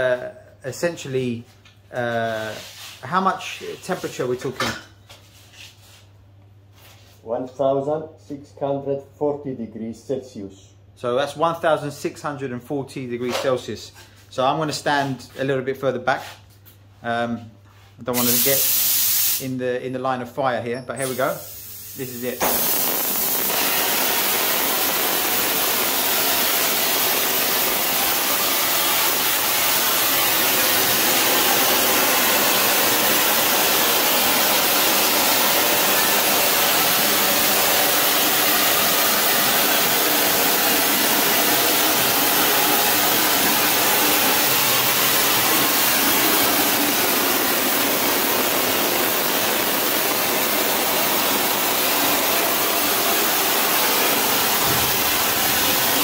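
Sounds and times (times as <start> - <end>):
flame spray gun hissing: 18.2 - 19.4, 21.1 - 56.0.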